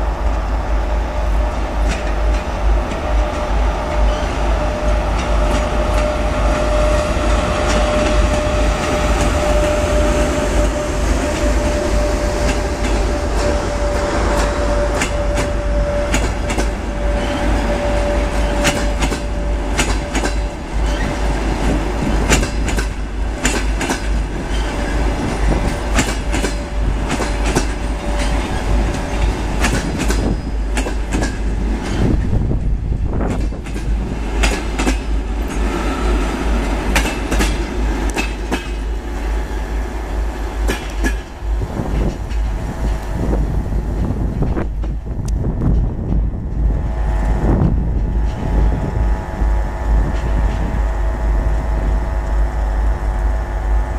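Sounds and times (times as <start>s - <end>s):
train rumble: 0.0s - 53.9s
train wheels clacking over rail joints: 1.7s - 32.4s, 33.2s - 39.7s, 40.5s - 43.2s
thin steady whine: 46.8s - 53.9s.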